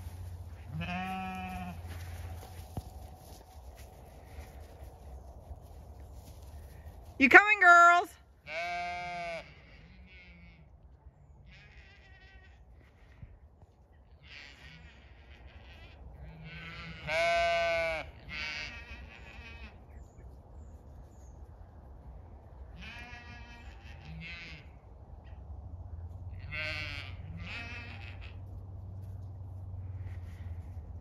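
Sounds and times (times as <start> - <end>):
sheep bleating: 0.6 - 2.3, 8.4 - 10.7, 11.5 - 12.6, 14.2 - 19.8, 22.8 - 24.8, 26.4 - 28.4.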